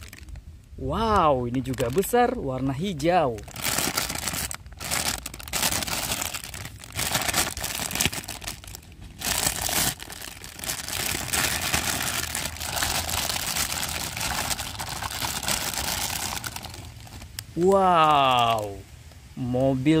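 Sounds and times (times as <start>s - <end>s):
plastic bag crinkling: 0.0s - 0.4s, 1.4s - 2.3s, 3.0s - 17.5s.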